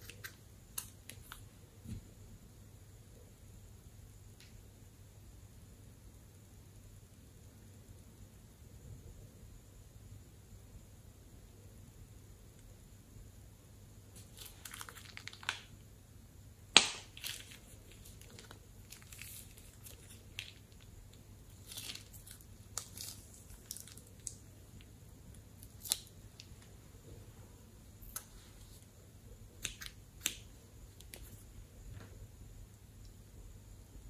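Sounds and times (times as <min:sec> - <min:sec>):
plastic bag crinkling: 0:14.2 - 0:15.7, 0:17.1 - 0:24.4
sharp snap: 0:16.7 - 0:17.2.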